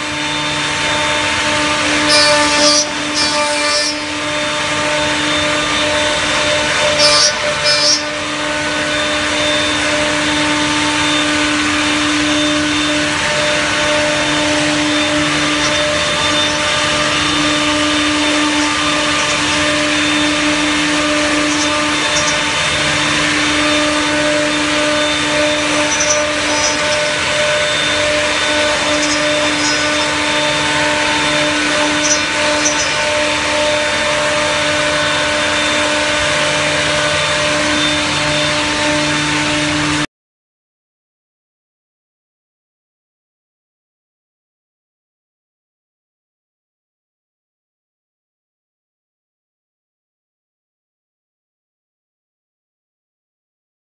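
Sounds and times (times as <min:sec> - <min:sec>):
router spindles humming: 0:00.0 - 0:40.1
bits cutting wood rushing: 0:00.2 - 0:40.0.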